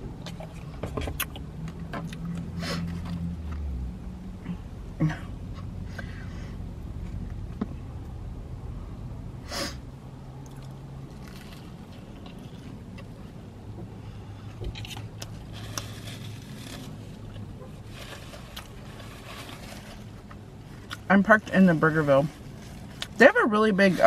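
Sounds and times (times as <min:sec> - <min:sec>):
low steady hum: 0:00.0 - 0:24.0
person chewing with wet mouth sounds: 0:10.4 - 0:13.1, 0:20.2 - 0:21.1.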